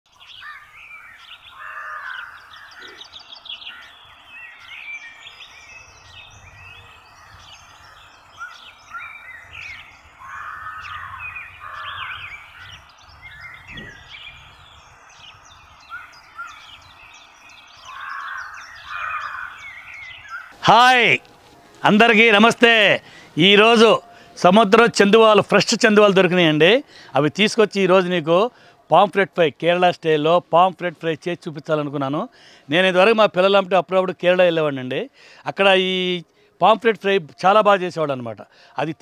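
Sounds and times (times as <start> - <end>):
small birds chirping: 0.1 - 27.7
crow-like caws: 0.4 - 0.8, 1.5 - 3.1, 10.2 - 12.8, 17.8 - 20.6.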